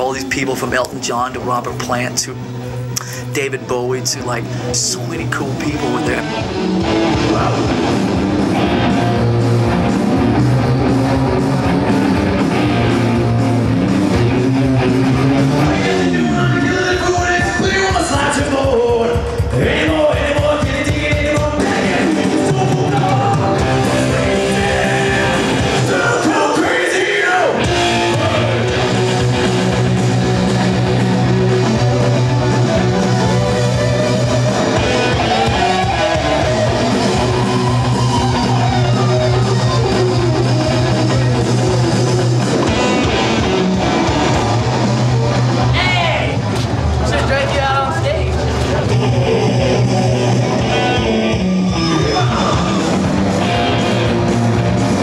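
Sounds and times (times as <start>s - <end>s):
rock band playing: 0.0s - 55.0s
person singing: 15.6s - 28.7s.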